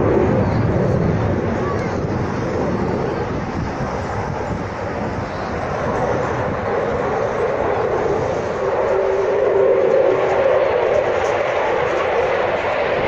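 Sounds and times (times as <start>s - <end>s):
distant jet rushing roar: 0.0s - 13.0s.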